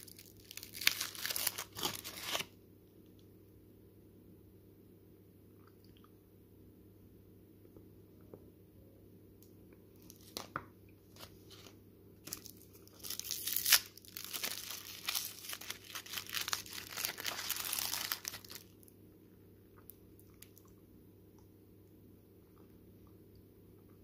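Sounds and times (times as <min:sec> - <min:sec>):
foil wrapper crinkling: 0:00.0 - 0:02.5, 0:11.1 - 0:18.8.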